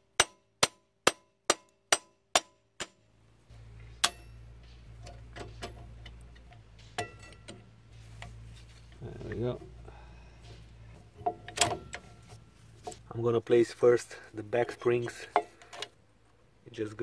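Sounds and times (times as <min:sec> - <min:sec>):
steady low hum: 0:02.8 - 0:16.9.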